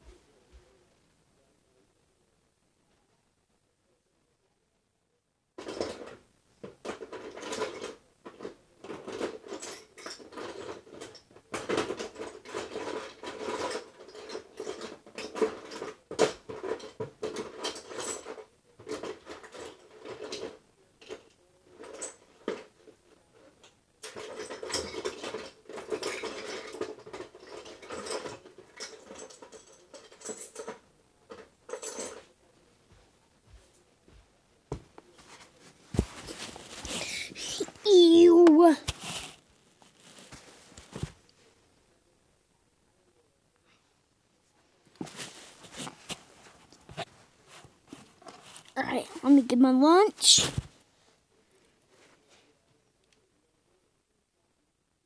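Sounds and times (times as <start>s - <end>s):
small objects clattering and rustling: 5.6s - 33.0s, 35.0s - 41.5s, 44.8s - 49.6s, 50.2s - 50.8s.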